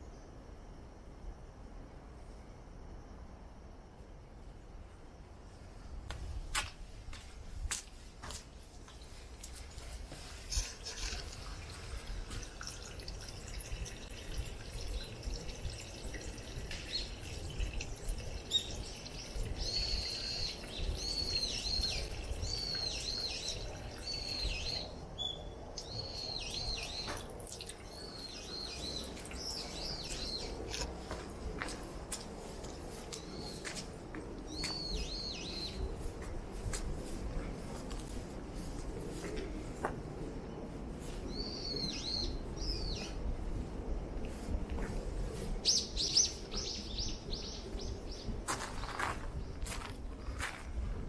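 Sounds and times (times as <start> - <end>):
water trickling into stone basin: 8.6 - 25.0, 25.7 - 31.6.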